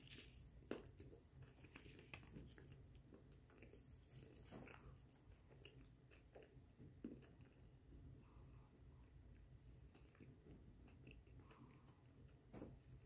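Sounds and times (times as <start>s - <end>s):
wet mouth chewing clicks and smacks: 9.9s - 12.5s.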